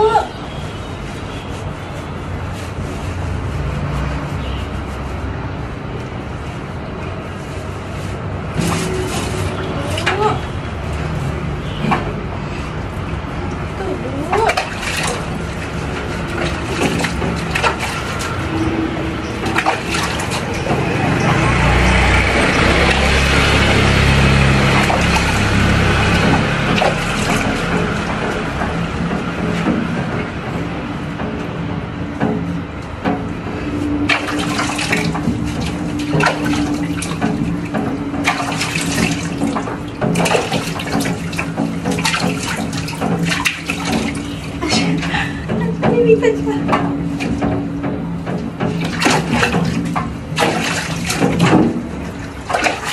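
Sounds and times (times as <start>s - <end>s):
wet rubbing and splashing: 0.0s - 52.9s
sharp knocks and clacks: 14.4s - 52.9s.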